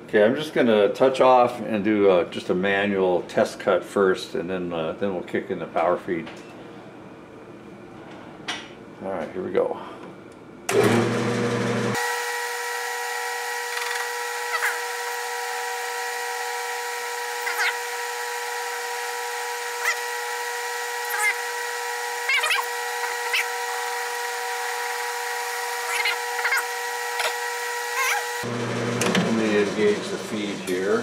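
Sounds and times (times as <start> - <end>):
metal lathe gear whine: 12.0 - 29.2
cutting tool squeaks: 13.8 - 15.3, 17.3 - 18.0, 19.7 - 20.3, 21.0 - 24.2, 25.6 - 28.4.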